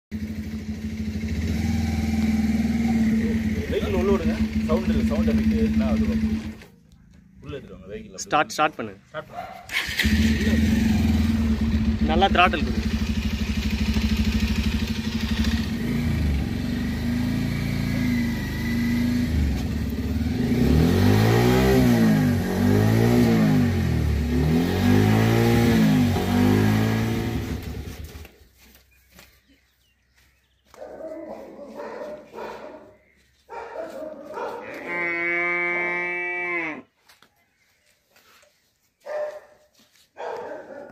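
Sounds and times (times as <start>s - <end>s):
motorcycle engine revving: 0.1s - 7.3s, 9.6s - 28.4s.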